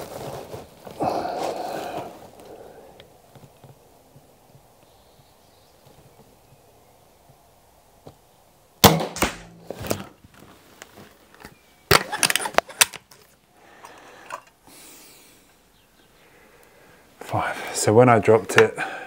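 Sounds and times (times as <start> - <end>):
air rifle shot crack: 8.8 - 9.7
rifle handling clunk and clicks: 11.4 - 14.6.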